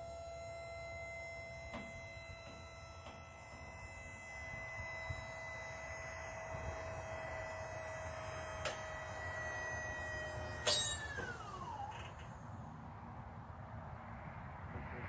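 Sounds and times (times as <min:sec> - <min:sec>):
lift motor whining: 0:00.0 - 0:12.6
motor cutoff click: 0:08.0 - 0:12.4.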